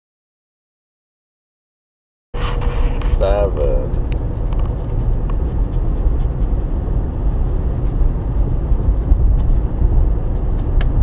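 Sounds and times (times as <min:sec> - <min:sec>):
vehicle rumble from inside cabin: 0:02.4 - 0:11.0.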